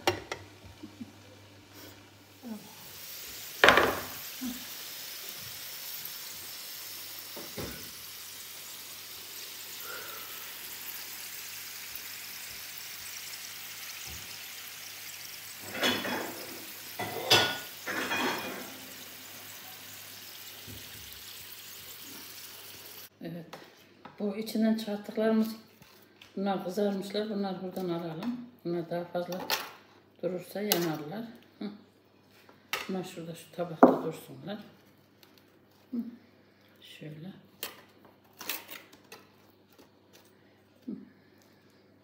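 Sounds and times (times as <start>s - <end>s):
potatoes sizzling on tray: 0.0s - 23.1s.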